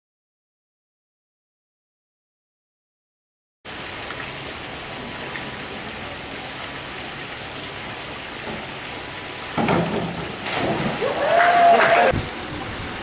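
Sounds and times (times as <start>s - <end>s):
hiss of water: 3.7s - 13.0s
divers splashing into water: 9.5s - 12.2s.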